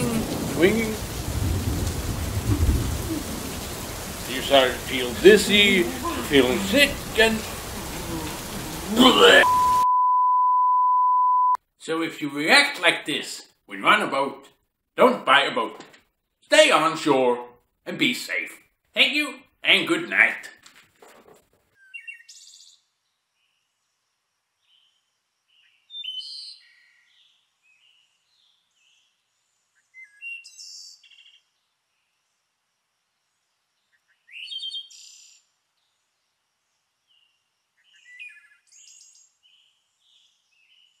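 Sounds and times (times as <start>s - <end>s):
birds chirping and trilling: 0.0s - 9.8s, 21.8s - 23.9s, 24.6s - 32.2s, 33.8s - 36.1s, 37.1s - 41.0s.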